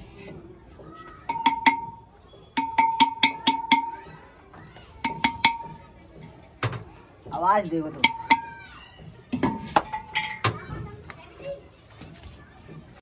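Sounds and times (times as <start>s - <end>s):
clay pots tapped ringing: 1.3s - 4.2s, 5.0s - 5.8s, 7.9s - 8.7s.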